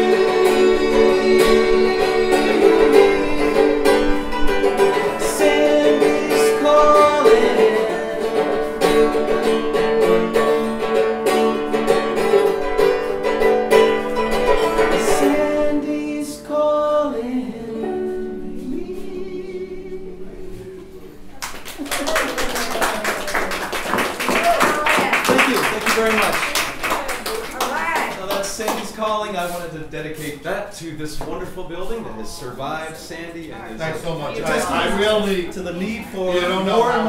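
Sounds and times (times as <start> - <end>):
lute strummed chords: 0.0 - 16.2.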